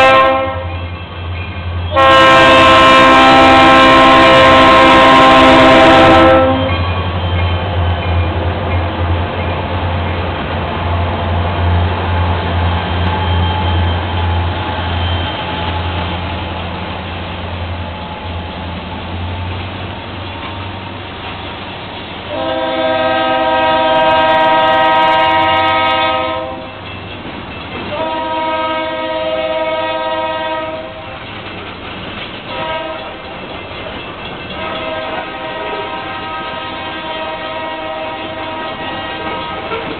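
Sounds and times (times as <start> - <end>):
locomotive air horn blasts: 0.0 - 0.7, 1.9 - 6.9, 22.3 - 26.7, 27.9 - 31.0, 32.5 - 33.2, 34.6 - 39.7
diesel locomotive engines droning: 0.0 - 39.9
wheels clacking over rail joints: 3.1 - 39.9.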